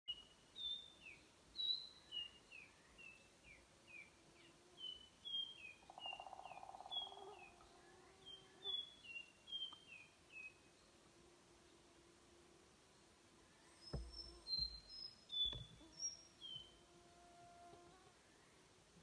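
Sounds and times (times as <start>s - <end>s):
low buzzing bird trill: 4.0s - 9.7s, 13.6s - 18.6s
bird whistling song: 8.3s - 10.6s.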